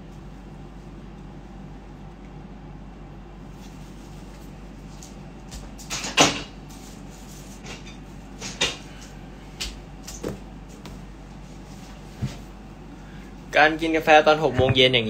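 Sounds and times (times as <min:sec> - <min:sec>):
faint steady hum: 0:00.0 - 0:15.0
knocks and clunks of handling: 0:14.6 - 0:14.9.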